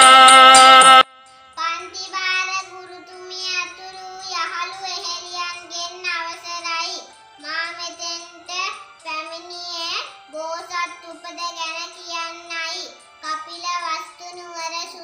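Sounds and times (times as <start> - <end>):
electronic keyboard music: 0.0 - 1.4
girl singing: 1.6 - 11.4.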